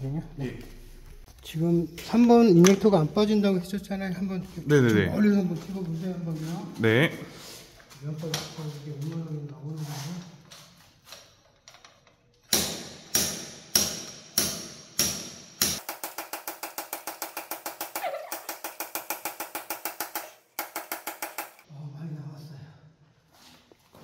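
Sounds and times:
slide hammer metallic blows: 12.5 - 21.6.

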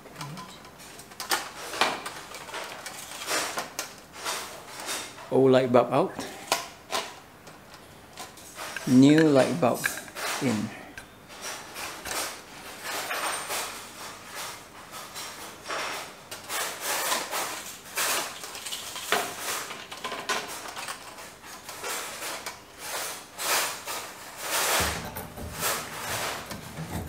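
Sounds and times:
plastic and pole rubbing and knocking: 24.4 - 27.0.

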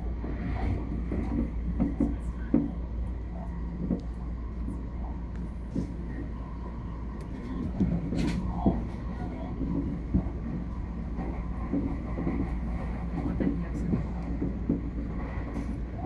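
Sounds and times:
train rumble from inside: 0.0 - 16.0.

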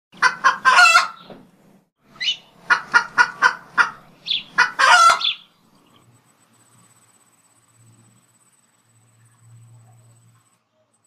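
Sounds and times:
chicken clucks: 0.2 - 1.3, 2.2 - 5.4
chicken calls: 0.2 - 1.4, 2.1 - 6.0.

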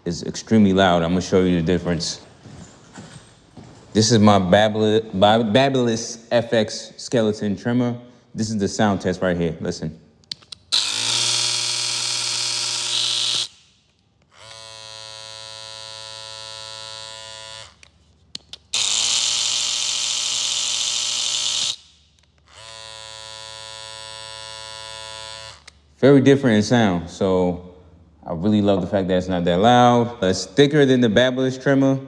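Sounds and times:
quiet hair trimmer running: 10.7 - 13.6, 14.3 - 18.0, 18.7 - 25.8
hair trimmer loud buzz: 10.7 - 13.7, 14.3 - 17.9, 18.7 - 21.9, 22.5 - 25.7.

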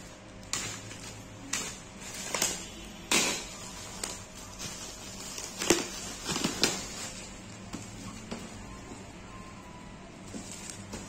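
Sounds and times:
plastic wrapping crinkling and tearing: 0.0 - 8.2.

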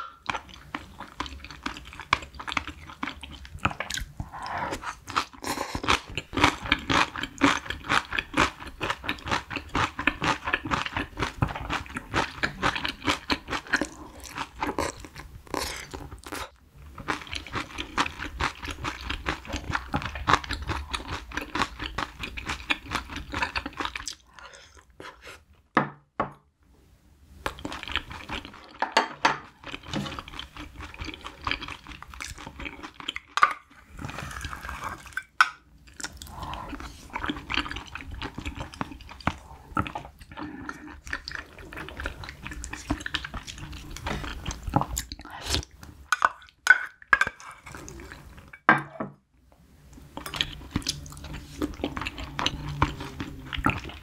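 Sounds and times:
wet chewing sounds: 35.8 - 48.4, 50.2 - 54.0.

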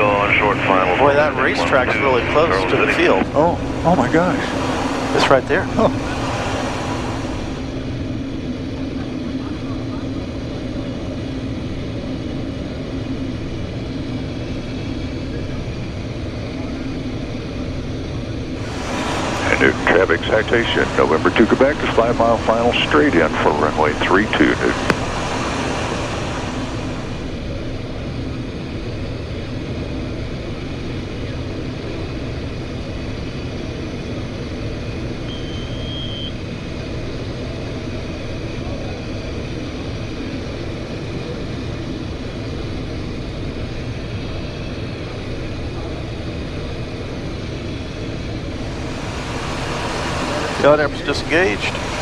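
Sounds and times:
cockpit airflow and engine noise: 0.0 - 52.0.

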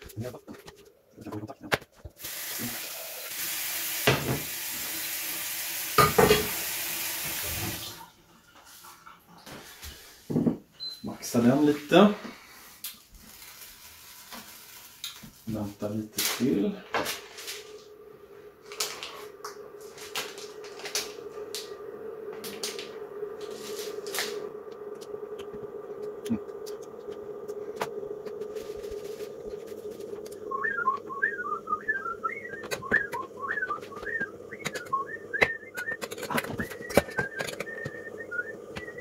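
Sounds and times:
steady low hum: 16.8 - 39.0
foil and paper wrappers crinkling: 18.6 - 21.7
person whistling a tune: 30.4 - 39.0.

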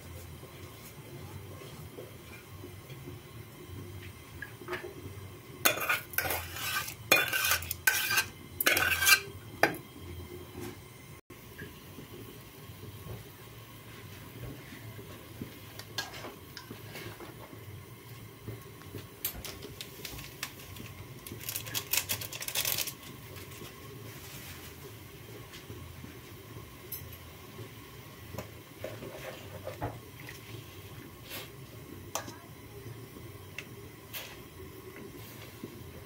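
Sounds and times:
low steady hum: 0.0 - 36.0
utensils clinking against metal pot: 5.7 - 9.8.

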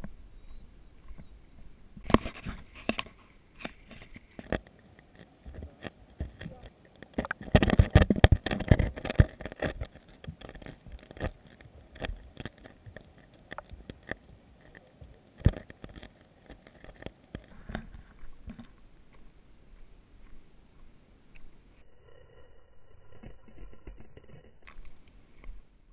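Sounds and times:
handling noise on camera housing: 2.0 - 18.8.

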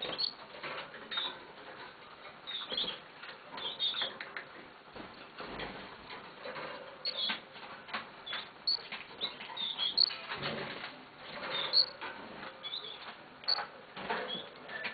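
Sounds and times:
canary chirping: 0.0 - 0.4, 2.4 - 3.0, 3.6 - 4.1, 7.0 - 7.4, 8.2 - 10.4, 11.2 - 14.9.

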